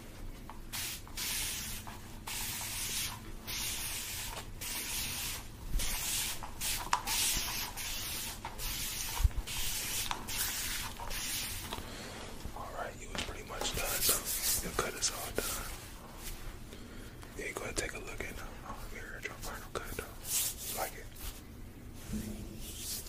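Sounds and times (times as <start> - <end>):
scratchy rubbing on microphone: 13.4 - 16.4, 18.2 - 21.4, 22.0 - 23.0.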